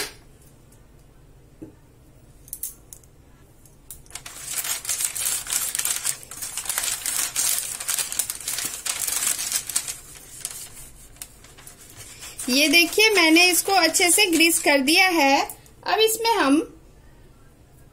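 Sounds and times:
paper crinkling under pastry brush: 0:04.1 - 0:15.2.

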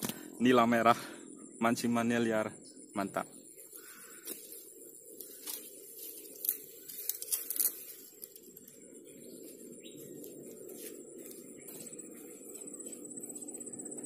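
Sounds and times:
faint steady hum: 0:00.0 - 0:14.0
rustling: 0:04.1 - 0:13.6.

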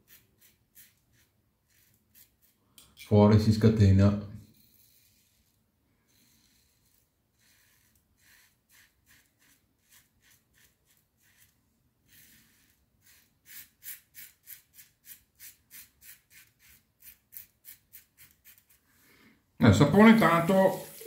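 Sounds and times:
razor scraping stubble: 0:00.0 - 0:02.6, 0:04.5 - 0:18.8.

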